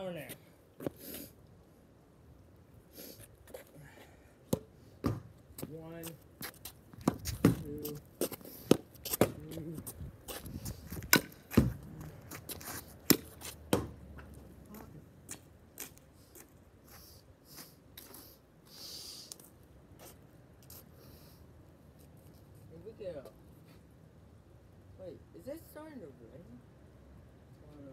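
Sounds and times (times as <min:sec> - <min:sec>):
person muttering: 0:09.3 - 0:10.0.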